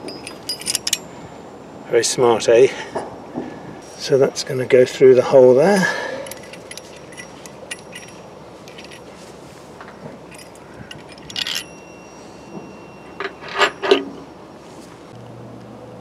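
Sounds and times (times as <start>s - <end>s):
metal clinking on steel deck: 0.0s - 1.2s, 5.9s - 14.5s
ringing metallic clink: 0.0s - 1.2s, 6.2s - 9.2s, 9.8s - 14.5s.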